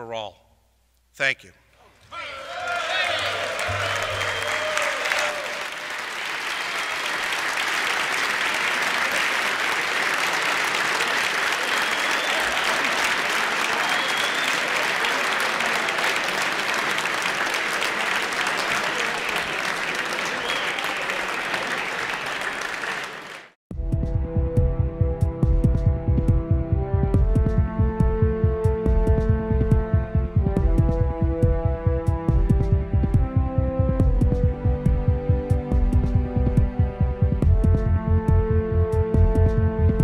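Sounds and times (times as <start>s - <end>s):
crowd applauding: 2.1s - 23.6s
music with low beat: 23.7s - 40.0s.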